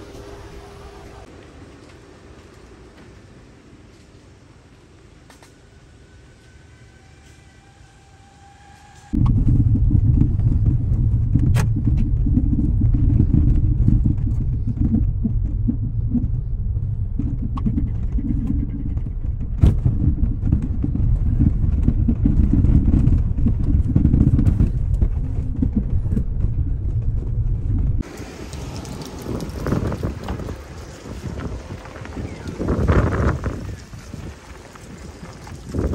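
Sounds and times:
car tyres rumbling on gravel: 0:00.0 - 0:35.9.

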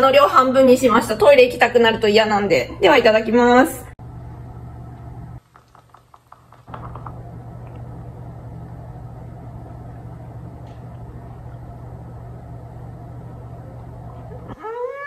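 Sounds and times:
low hum: 0:03.9 - 0:05.4, 0:06.7 - 0:15.0.

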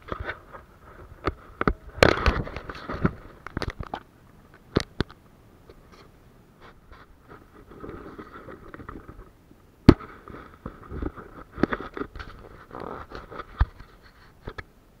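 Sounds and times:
light rustle: 0:10.0 - 0:14.7.

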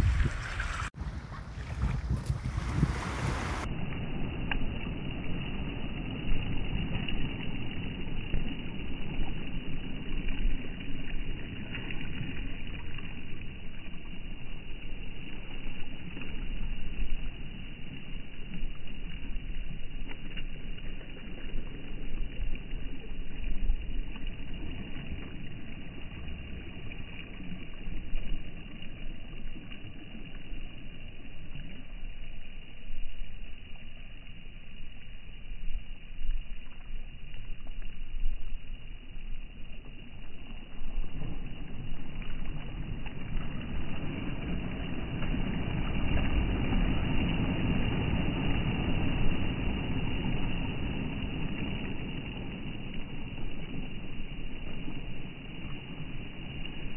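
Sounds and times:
waves washing on pebbles: 0:00.0 - 0:09.2, 0:39.8 - 0:56.9.

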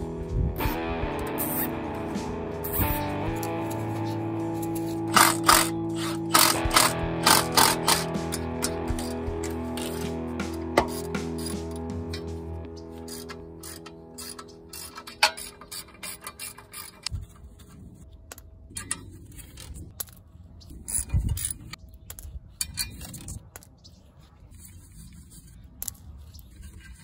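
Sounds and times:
ratchet wrench clicking: 0:02.6 - 0:10.1, 0:10.8 - 0:12.3, 0:12.9 - 0:17.1.

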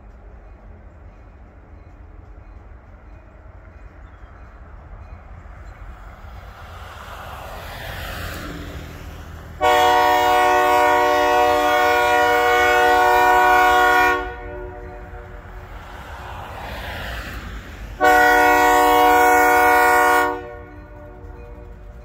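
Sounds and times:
low rumble of approaching train: 0:00.0 - 0:22.0
vehicle passing on road: 0:05.9 - 0:13.0, 0:14.1 - 0:19.4
locomotive air horn blast: 0:09.6 - 0:15.5, 0:18.0 - 0:21.6.

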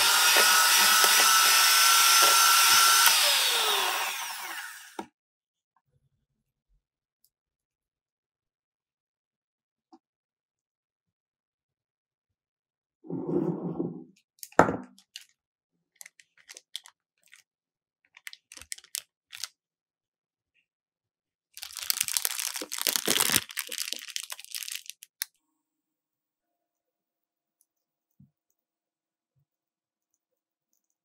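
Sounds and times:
spatula working cream in glass bowl: 0:00.0 - 0:04.4
plastic piping bag crinkling: 0:16.0 - 0:17.5, 0:18.2 - 0:19.5, 0:21.6 - 0:25.3.

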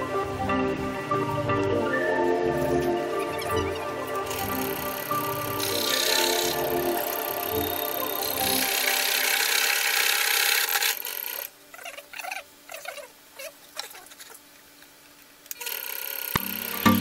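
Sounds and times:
scroll saw cutting wood: 0:04.3 - 0:11.5.

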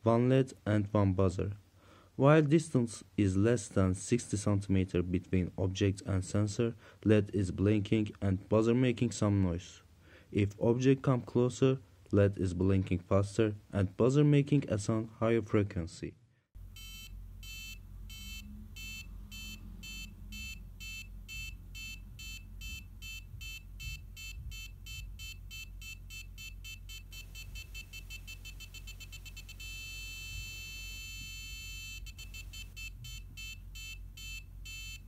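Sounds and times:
low steady hum: 0:16.6 - 0:35.0
parking sensor buzzer beeping: 0:16.6 - 0:35.0.

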